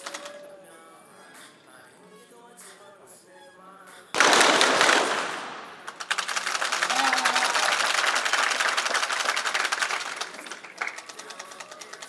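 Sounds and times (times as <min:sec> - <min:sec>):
audience clapping: 0:04.2 - 0:12.0.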